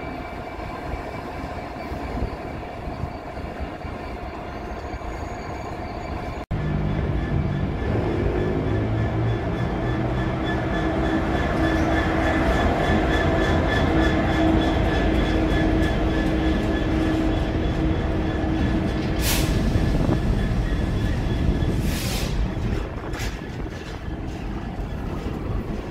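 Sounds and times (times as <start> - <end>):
diesel locomotive engine humming: 0.0 - 25.9
freight wagons rumbling past: 5.9 - 25.9.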